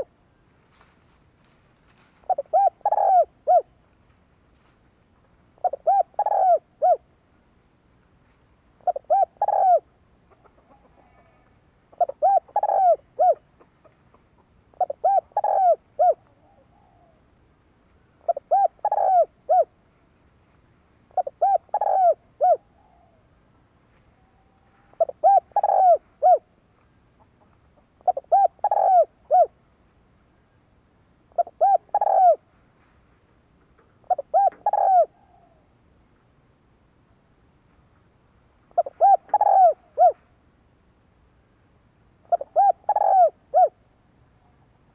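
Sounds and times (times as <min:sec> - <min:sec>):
dove cooing: 0:02.2 - 0:03.8, 0:05.6 - 0:07.1, 0:08.8 - 0:17.3, 0:18.2 - 0:19.8, 0:21.1 - 0:23.4, 0:24.2 - 0:26.5, 0:28.0 - 0:29.6, 0:31.3 - 0:32.5, 0:33.9 - 0:35.7, 0:38.7 - 0:40.3, 0:42.2 - 0:43.8.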